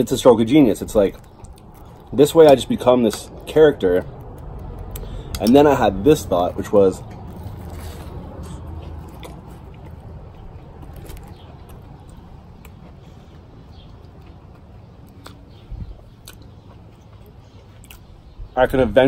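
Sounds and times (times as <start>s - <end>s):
person chewing sandwich: 1.1s - 2.7s, 3.3s - 5.4s, 7.0s - 18.1s
mouth clicks: 11.2s - 16.6s.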